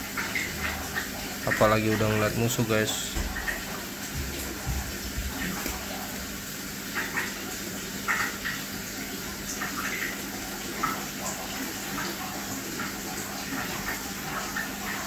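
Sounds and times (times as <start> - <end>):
aquarium water hissing: 0.0 - 15.0.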